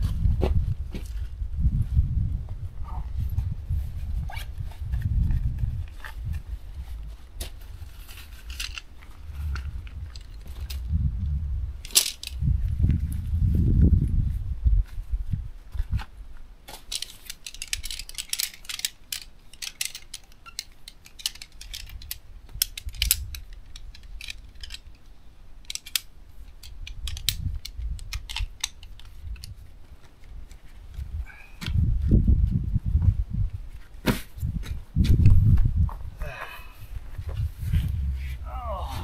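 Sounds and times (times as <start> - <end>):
crinkling of camping gear: 3.2 - 10.9, 14.8 - 31.9
low rumble: 9.1 - 15.5, 36.9 - 39.0.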